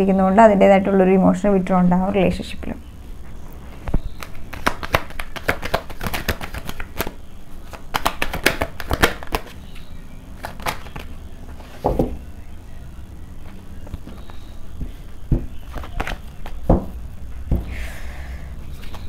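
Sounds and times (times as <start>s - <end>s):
cards being shuffled: 3.7s - 12.1s, 13.4s - 16.8s, 18.7s - 19.0s.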